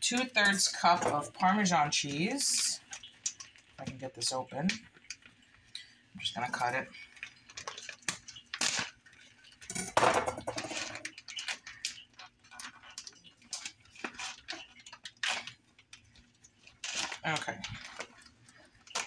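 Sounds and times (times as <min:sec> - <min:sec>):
plastic pouch crinkling: 0:06.6 - 0:09.7, 0:10.5 - 0:19.0.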